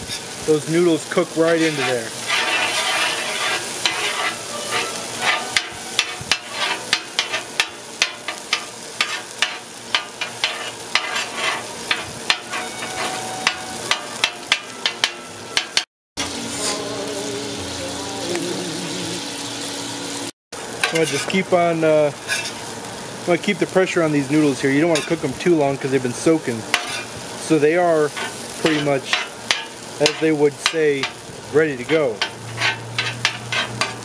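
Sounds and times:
food sizzling on a griddle: 0.0s - 34.0s
metal spatula clacking and scraping: 1.4s - 15.9s, 20.8s - 21.4s, 22.3s - 22.6s, 24.9s - 25.2s, 26.7s - 27.1s, 28.1s - 31.2s, 31.8s - 34.0s.

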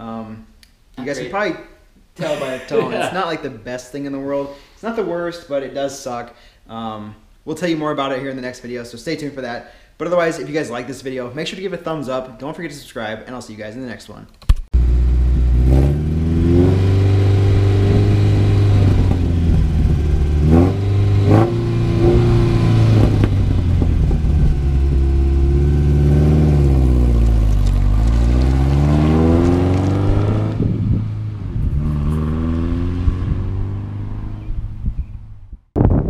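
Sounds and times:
pickup truck engine accelerating: 14.8s - 34.4s.

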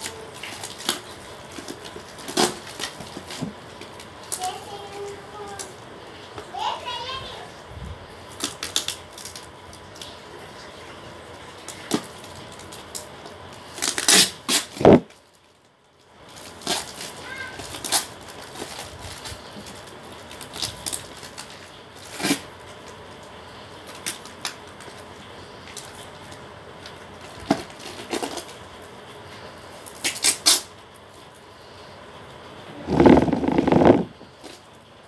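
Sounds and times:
packaging being torn open: 0.0s - 4.5s, 8.3s - 10.2s, 11.6s - 15.3s, 16.3s - 23.0s, 23.9s - 25.0s, 27.2s - 28.6s, 29.8s - 30.7s.

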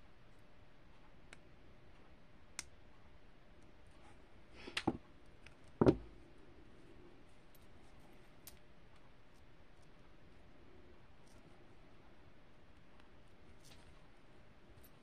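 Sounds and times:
pliers knocking on a table: 5.8s - 6.1s.

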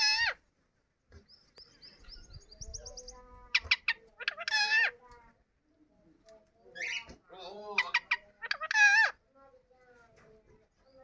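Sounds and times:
parakeet chirping and calling: 0.0s - 0.5s, 1.2s - 5.1s, 6.6s - 9.3s.

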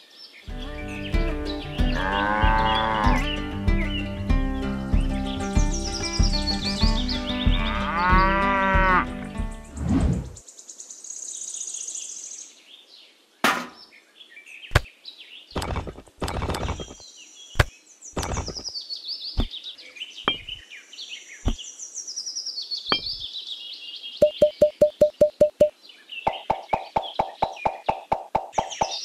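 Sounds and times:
birds chirping: 0.0s - 29.0s
cow mooing: 1.9s - 3.2s, 7.6s - 9.2s
clay bricks knocking: 20.3s - 20.6s.

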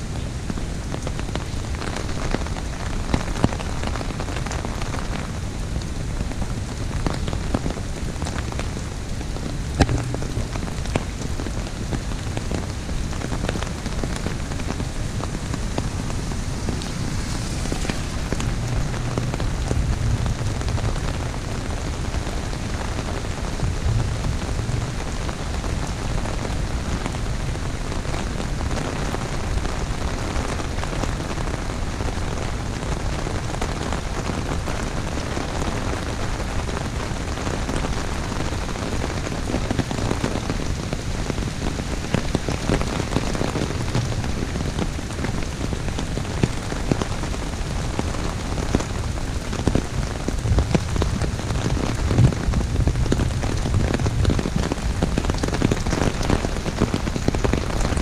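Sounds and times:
heavy rain on umbrella: 0.0s - 58.0s.

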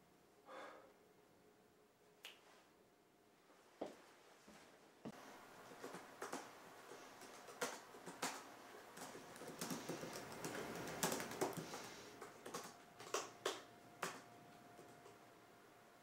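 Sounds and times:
typing on laptop keyboard: 5.6s - 15.2s.

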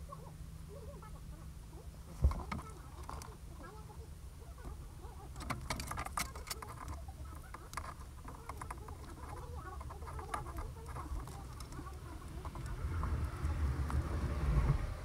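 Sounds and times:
wires clicking and rustling: 2.2s - 3.4s, 5.2s - 14.0s.

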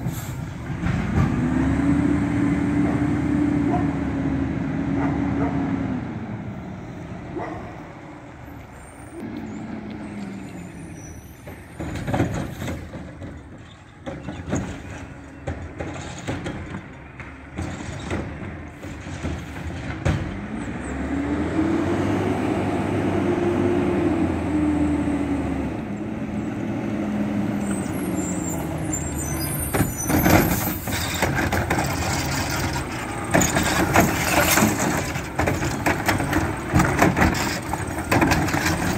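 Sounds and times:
garbage truck diesel engine: 0.0s - 38.9s.

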